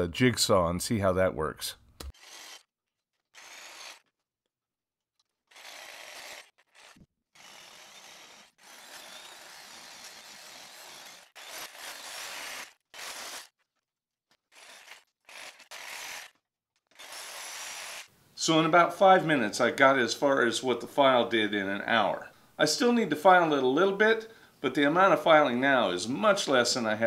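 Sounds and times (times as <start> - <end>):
jigsaw cutting steel: 2.1 - 4.4, 5.2 - 18.2.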